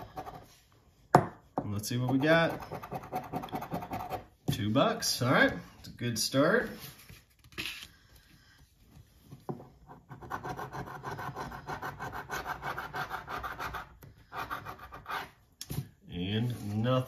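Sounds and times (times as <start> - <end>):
knock on table: 1.1 - 1.4.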